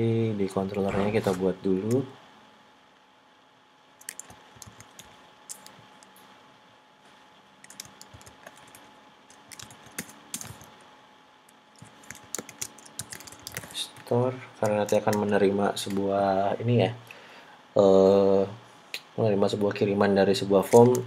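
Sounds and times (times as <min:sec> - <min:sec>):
faint steady hum: 0:00.0 - 0:21.0
computer keyboard typing: 0:04.0 - 0:06.1, 0:07.6 - 0:10.7, 0:11.8 - 0:16.1, 0:20.7 - 0:21.0.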